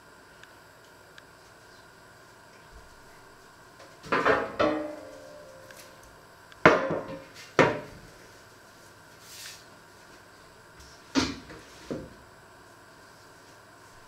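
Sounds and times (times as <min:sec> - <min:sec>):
metal baking tray knocking on wood: 0:04.1 - 0:05.1, 0:06.7 - 0:07.9.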